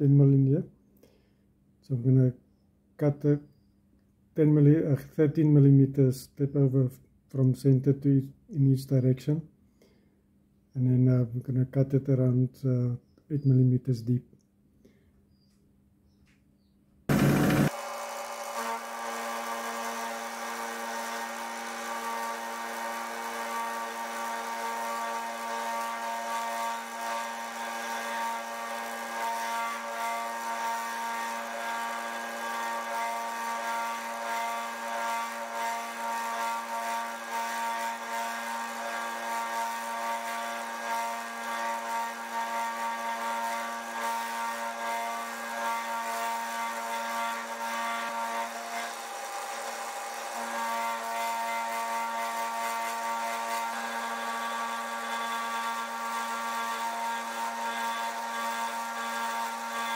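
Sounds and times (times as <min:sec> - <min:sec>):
metal cutting noise: 0:17.1 - 0:59.9
milling machine whine: 0:17.1 - 0:59.9.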